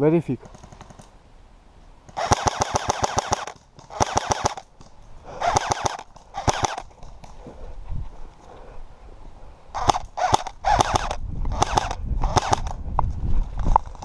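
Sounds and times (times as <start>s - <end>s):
airsoft gun rapid bursts: 2.2s - 4.6s, 5.4s - 6.9s, 9.8s - 12.7s.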